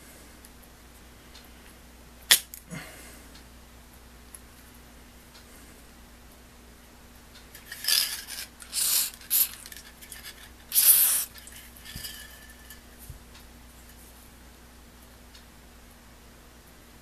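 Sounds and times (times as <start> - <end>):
aerosol spray can hissing: 8.6 - 9.7, 10.7 - 11.4.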